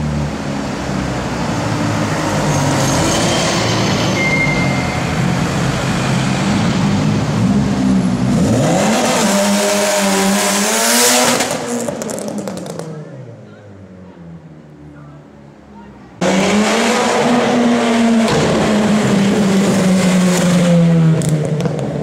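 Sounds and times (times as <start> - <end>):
city street traffic: 0.0 - 22.0
car engine accelerating hard: 5.4 - 12.8, 16.2 - 22.0
exhaust rush: 14.6 - 22.0.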